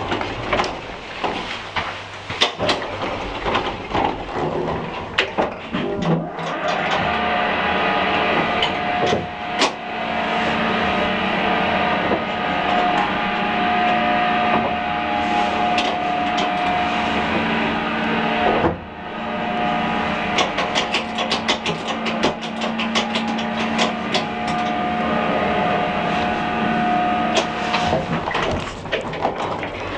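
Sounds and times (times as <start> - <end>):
lift motor whine and hum: 0.0 - 29.9
lift car rattling clicks: 20.3 - 24.9.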